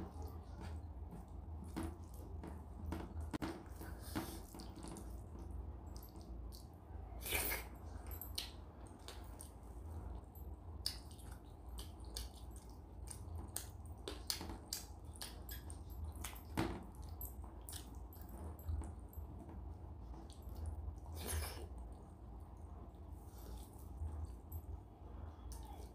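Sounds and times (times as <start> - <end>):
wet mouth clicks and chewing: 3.7 - 10.2, 10.8 - 19.0.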